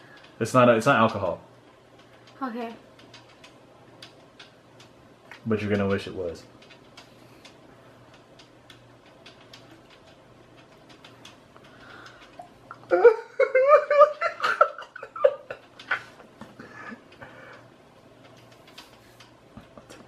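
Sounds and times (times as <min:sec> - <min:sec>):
people laughing hard: 0:12.9 - 0:17.0.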